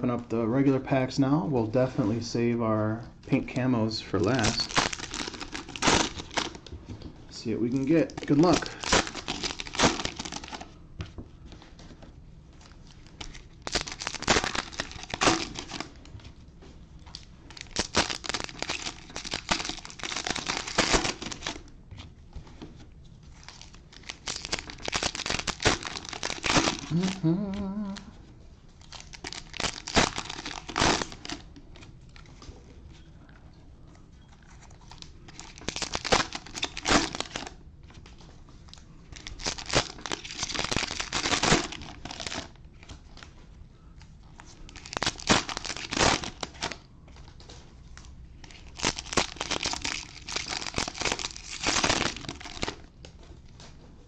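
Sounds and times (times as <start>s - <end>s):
cellophane wrappers crinkling and tearing: 4.2s - 6.7s, 7.4s - 10.8s, 12.6s - 16.1s, 17.0s - 21.7s, 23.3s - 28.1s, 28.8s - 32.4s, 34.3s - 43.4s, 44.0s - 53.8s
cards being handled: 4.2s - 15.9s.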